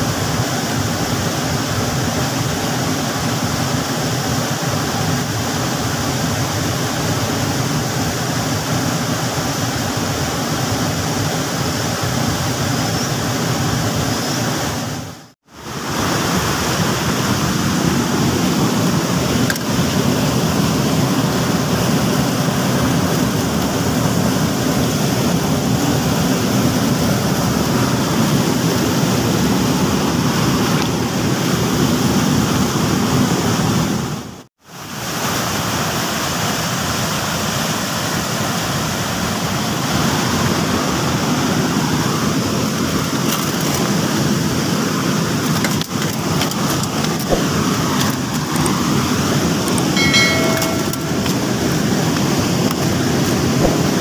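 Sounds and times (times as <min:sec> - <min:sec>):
waterfall rushing: 0:00.0 - 0:34.0, 0:43.9 - 0:54.0.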